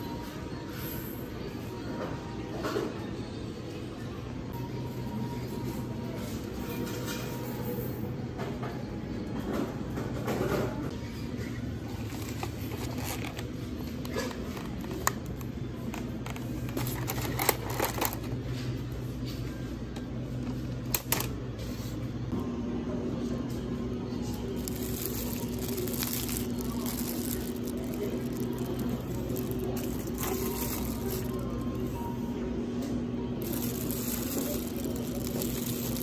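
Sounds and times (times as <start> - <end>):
low hum of store: 0.0 - 36.0
plastic egg pack clicking and crinkling: 16.3 - 18.3, 24.6 - 31.4, 33.4 - 36.0.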